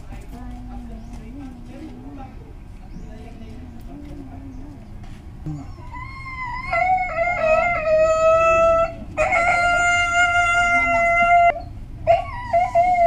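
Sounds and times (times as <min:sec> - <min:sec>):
dog howling: 0:05.6 - 0:13.0.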